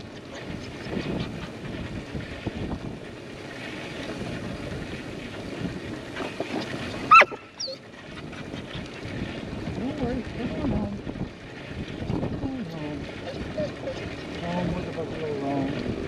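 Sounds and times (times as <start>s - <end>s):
wind on microphone: 0.0s - 16.0s
dog yelp: 7.1s - 7.8s.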